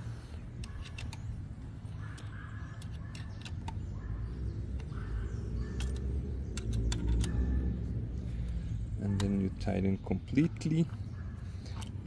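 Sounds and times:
engine rumble: 0.0s - 12.0s
metallic tool clicks: 0.5s - 4.0s, 5.7s - 7.6s.

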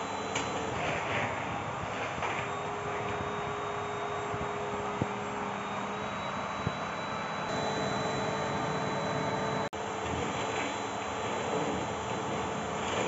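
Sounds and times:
vacuum cleaner whining: 0.0s - 13.0s.

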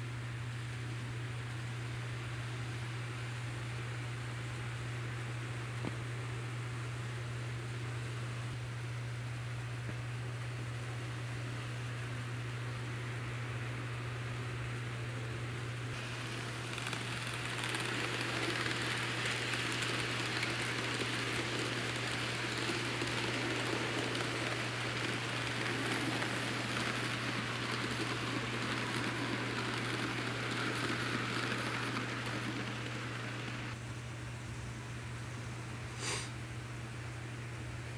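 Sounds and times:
constant low hum: 0.0s - 37.9s
model train wheels rolling: 15.9s - 33.8s.

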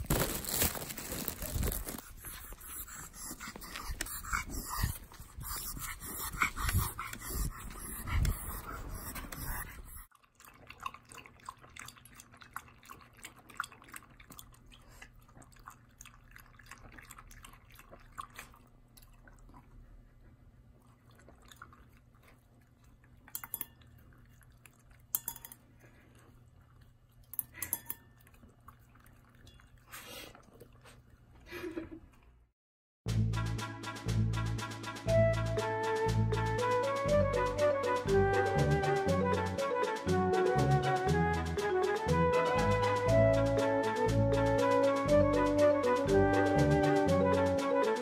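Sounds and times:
puppy lapping water: 2.0s - 31.5s
clinks against metal bowl: 23.3s - 23.9s, 25.1s - 25.6s, 27.3s - 28.2s.

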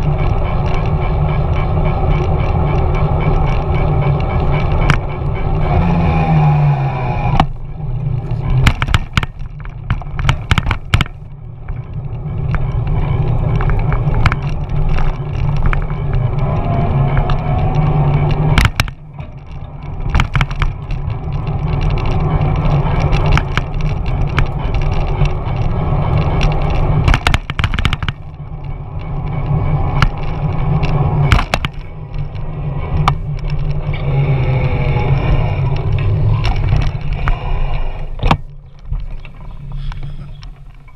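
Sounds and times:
bike rattling clicks and knocks: 0.0s - 6.0s, 7.2s - 40.9s
road rumble: 0.0s - 40.9s.

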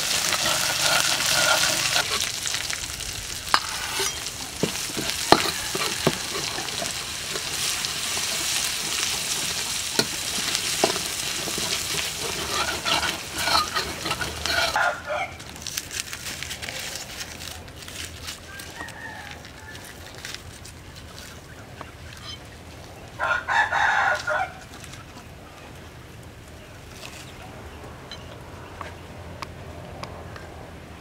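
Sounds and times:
ladle scraping wok: 0.0s - 15.3s
garlic sizzling in oil: 0.0s - 16.1s
ladle clinking on pan: 3.6s - 7.5s
distant rooster crowing: 5.1s - 6.9s, 14.5s - 15.4s, 18.4s - 20.2s, 23.2s - 24.7s.

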